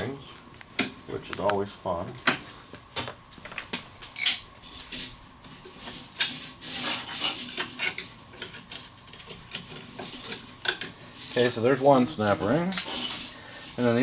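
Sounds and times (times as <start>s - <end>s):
metallic clicks and scrapes: 5.8s - 11.5s.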